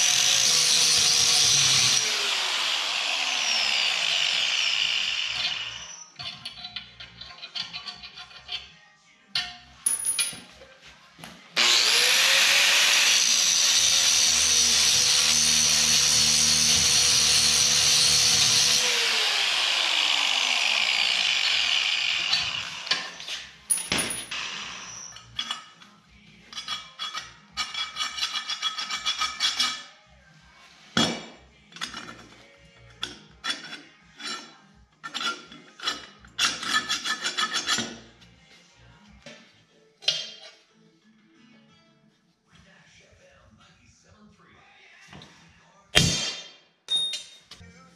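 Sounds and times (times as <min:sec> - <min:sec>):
angle grinder cutting metal: 0:00.0 - 0:06.0, 0:11.6 - 0:25.6
metal clanks and scrapes: 0:05.4 - 0:11.0, 0:22.2 - 0:30.0, 0:30.7 - 0:38.3, 0:39.3 - 0:40.7.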